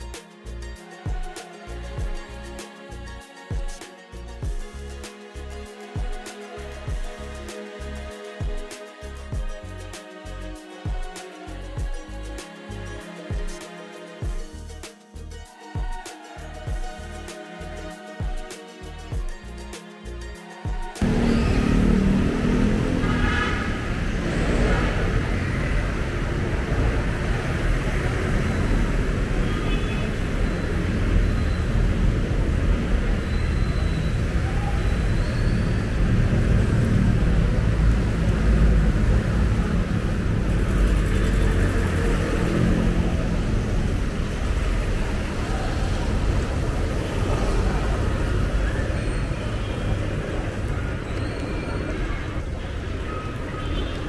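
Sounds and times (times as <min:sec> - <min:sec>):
traffic rumble: 0:21.0 - 0:54.0.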